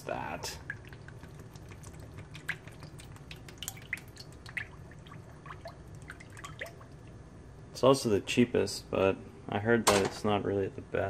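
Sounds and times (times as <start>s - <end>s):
oil trickling into pan: 0.4s - 7.2s
small plinks and drips: 0.4s - 7.2s.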